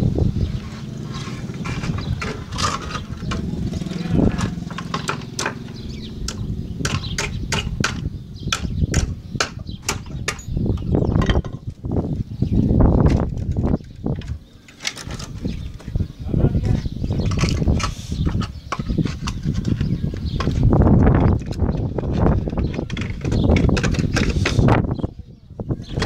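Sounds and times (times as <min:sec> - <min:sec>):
sharp knocks and taps: 0:04.4 - 0:11.7.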